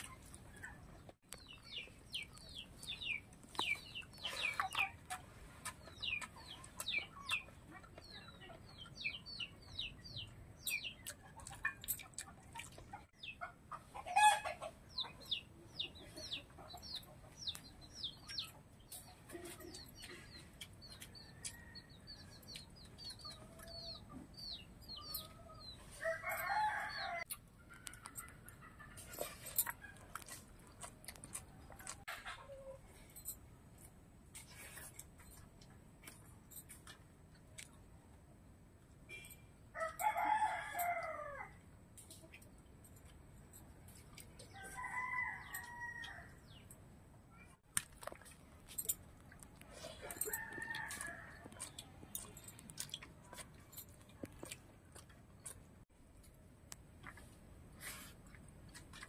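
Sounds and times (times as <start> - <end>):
chickens peeping: 0.0 - 26.0.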